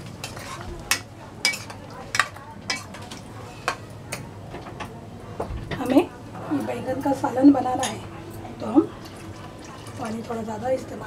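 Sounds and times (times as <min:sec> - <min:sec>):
metal spoon clinking in pot: 0:00.3 - 0:02.9.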